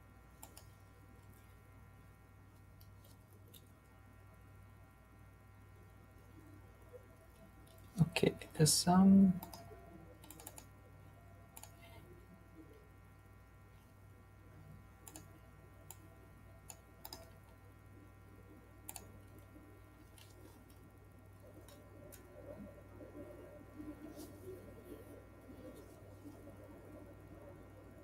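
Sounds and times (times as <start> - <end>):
steady faint hum: 0.0 - 28.0
keyboard keystrokes: 10.2 - 10.7, 16.7 - 17.3.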